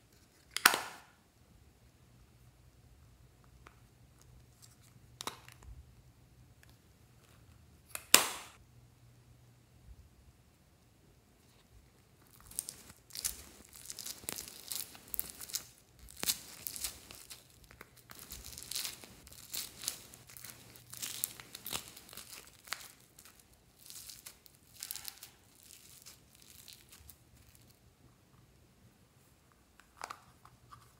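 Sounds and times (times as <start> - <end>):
foam slime crackling: 12.3 - 27.7.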